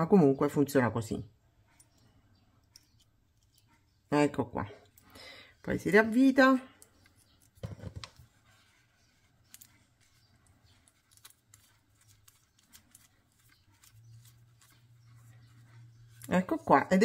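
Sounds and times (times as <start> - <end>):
metallic clicks and scraping: 1.7 - 4.0.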